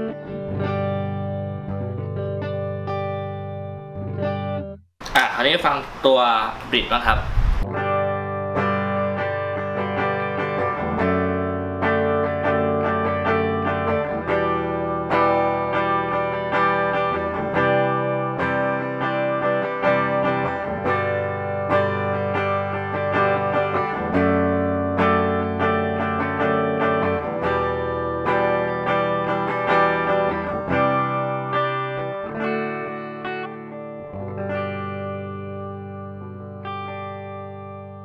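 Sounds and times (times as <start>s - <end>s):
clean electric guitar chords: 0.0s - 4.8s, 7.2s - 38.0s.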